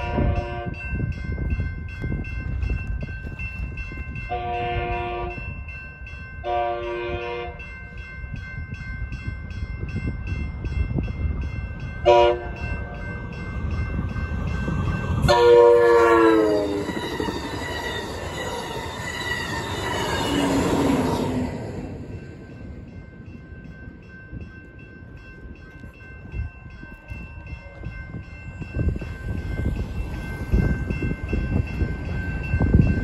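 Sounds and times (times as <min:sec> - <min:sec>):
train horn blasts: 0:00.0 - 0:00.8, 0:04.3 - 0:05.5, 0:06.4 - 0:07.7, 0:12.0 - 0:13.0, 0:15.2 - 0:17.0
railroad crossing bell dinging: 0:00.0 - 0:33.0
train cars rushing past: 0:00.0 - 0:33.0.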